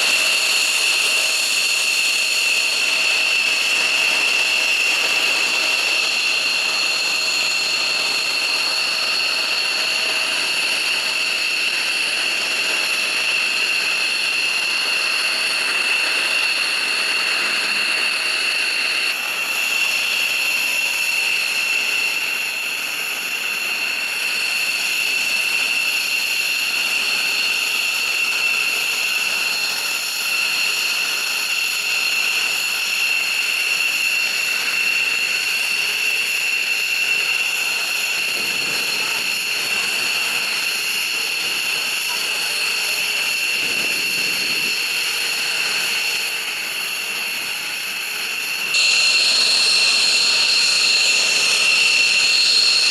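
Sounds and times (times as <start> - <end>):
jet engine turbine whine: 0.0 - 52.9
rushing noise: 37.4 - 52.9.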